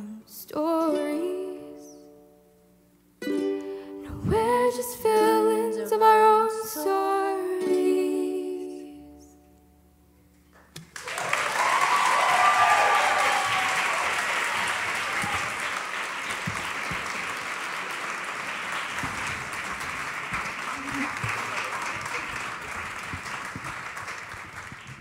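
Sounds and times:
ukulele chord: 0:00.8 - 0:02.5, 0:03.2 - 0:09.8
audience applauding: 0:10.6 - 0:25.0
person cheering: 0:11.0 - 0:15.8.

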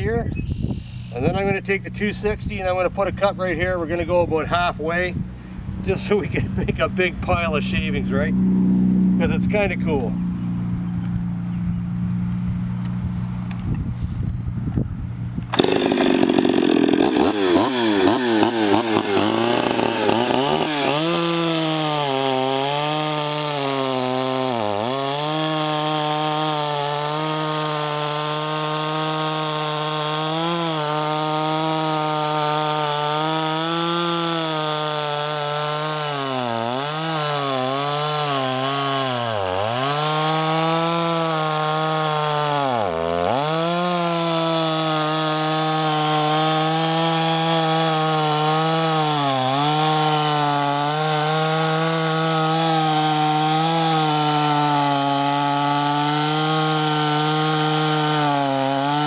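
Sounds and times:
chainsaw cutting into a log: 0:15.4 - 0:59.0
chainsaw revving: 0:15.5 - 0:59.0.

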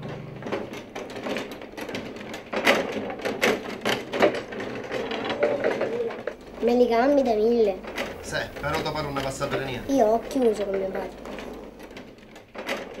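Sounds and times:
loud bangs: 0:00.0 - 0:04.6, 0:07.7 - 0:10.7
table football clacking: 0:00.0 - 0:13.0.

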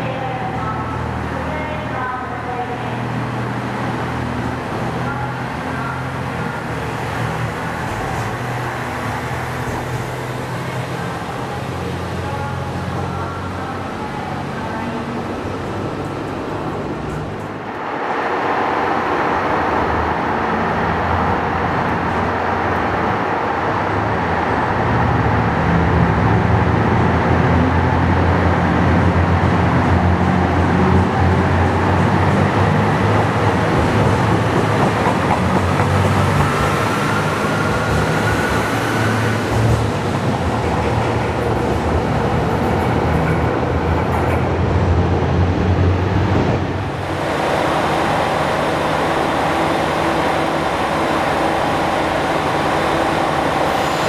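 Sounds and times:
railcar whine rising in pitch: 0:45.1 - 0:54.0.

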